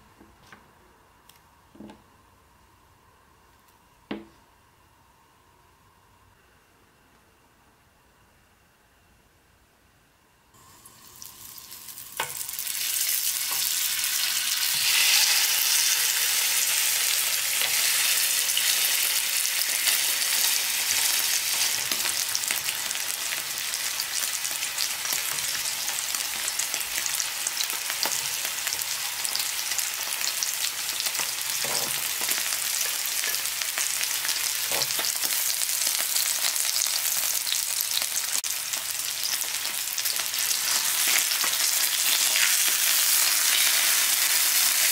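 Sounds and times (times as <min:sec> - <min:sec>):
steak sizzling in a pan: 0:10.6 - 0:44.9.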